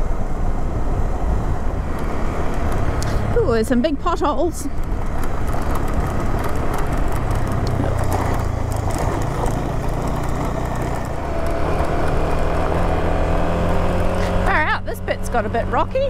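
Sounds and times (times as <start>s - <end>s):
motorcycle engine running: 0.0s - 16.0s
tyre and wind noise: 0.0s - 16.0s
clicks and knocks from rough road: 1.9s - 14.7s.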